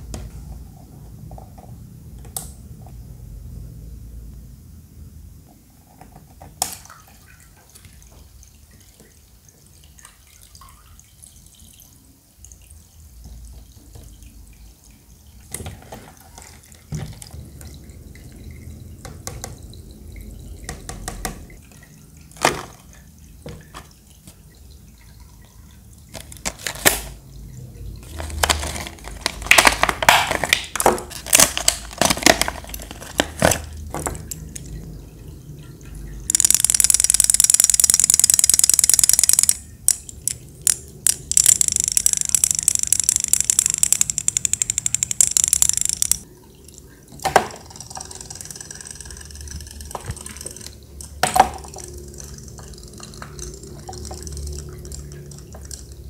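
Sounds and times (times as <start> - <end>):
water trickling into tank: 5.4 - 56.0
plastic packaging crinkling: 26.2 - 27.2, 28.0 - 34.0.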